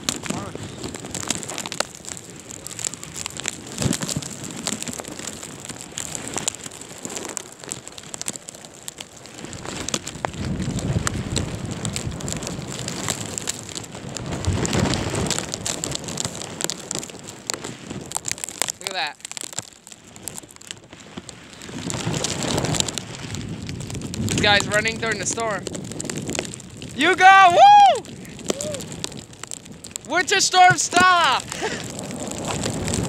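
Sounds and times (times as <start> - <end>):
crackle of sharp ticks: 0.0 - 33.0
wind gusts buffeting microphone: 0.0 - 33.0
deep rumbling surges: 23.4 - 33.0.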